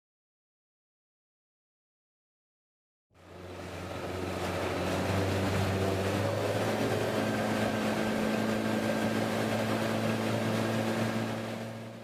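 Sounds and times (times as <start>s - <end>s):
outboard motor running: 3.2s - 12.0s
water rushing in wake: 3.2s - 12.0s.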